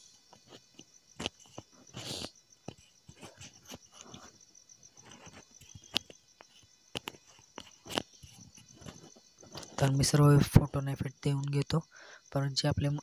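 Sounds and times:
faint high-pitched chirring: 0.0 - 13.0.

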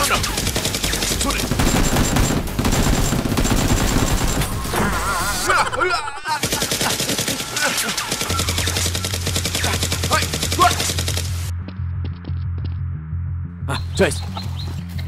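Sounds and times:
rapid automatic gunfire: 0.0 - 4.7, 6.3 - 11.5.

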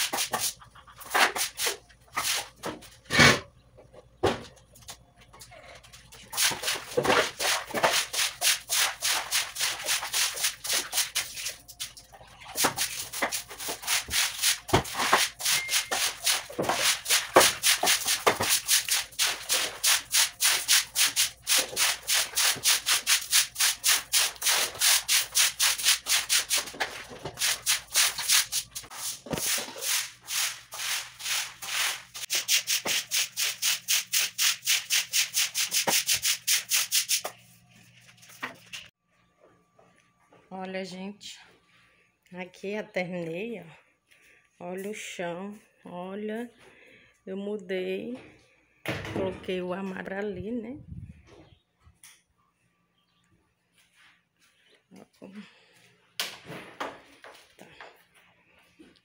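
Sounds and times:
broom scrubbing wet floor: 0.0 - 3.3, 6.0 - 38.9.

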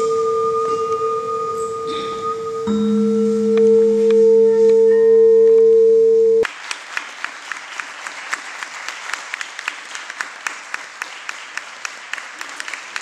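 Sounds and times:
held musical tone: 0.0 - 6.4
crowd clapping: 6.4 - 13.0.

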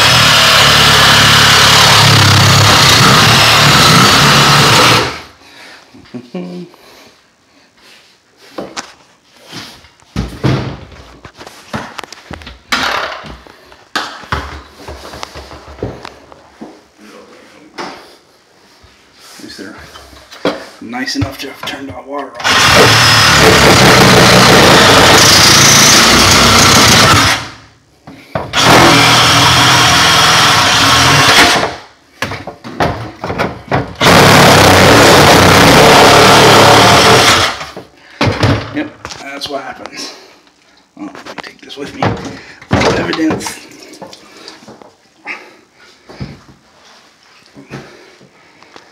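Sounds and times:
knocks and thuds in cabinet: 10.2 - 11.0, 32.2 - 34.0, 38.2 - 38.8, 42.0 - 43.5
reciprocating saw cutting plastic pipe: 22.4 - 27.6, 28.6 - 31.8.

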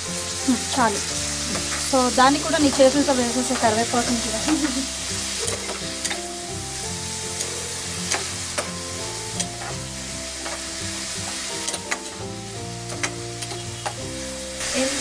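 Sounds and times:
soft background music: 0.0 - 15.0
vegetables sizzling in oil: 0.0 - 15.0
metal ladle scraping pan: 2.6 - 6.3.

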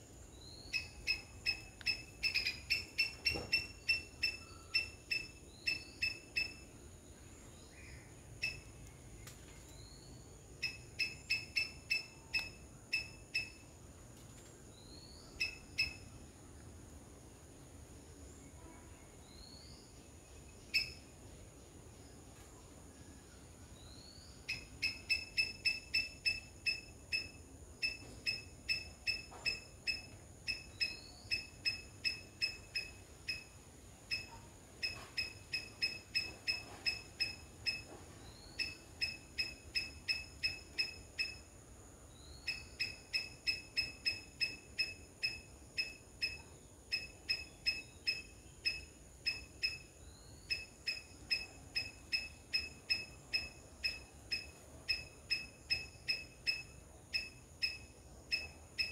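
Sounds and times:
squirrel chirping: 0.4 - 6.7, 8.4 - 8.8, 10.6 - 13.7, 15.3 - 16.2, 20.7 - 21.0, 24.4 - 41.6, 42.2 - 58.9.

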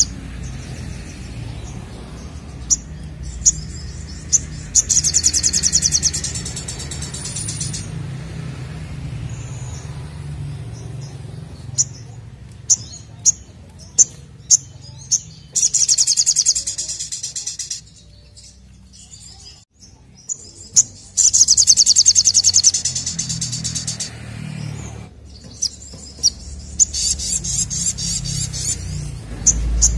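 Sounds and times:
bird chirps: 0.0 - 8.1, 9.1 - 29.9
bird trilling: 1.6 - 8.0, 10.9 - 18.6, 20.3 - 29.9.

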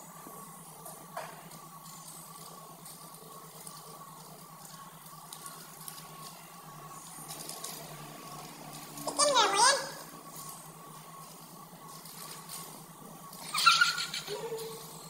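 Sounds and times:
steady low hum: 0.0 - 15.0
plastic bag rustling: 10.1 - 13.6.

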